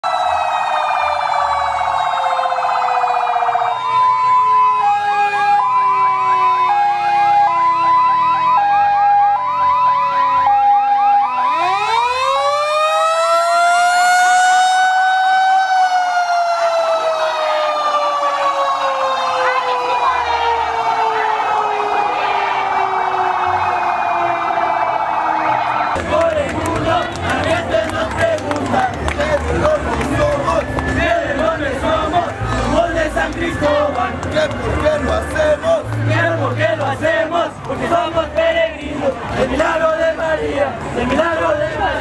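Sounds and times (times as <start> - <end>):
electronic vehicle siren: 0.0 - 26.0.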